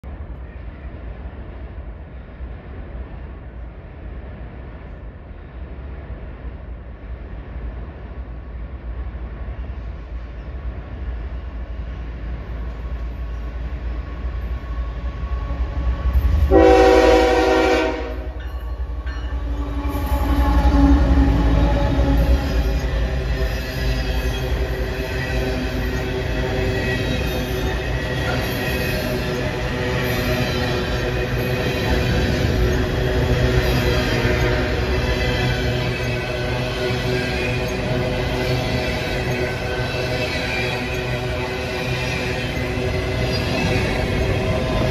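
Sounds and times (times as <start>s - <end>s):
diesel locomotive rumble: 0.0s - 44.9s
train wheels rolling: 3.5s - 44.9s
train horn blast: 16.5s - 18.4s.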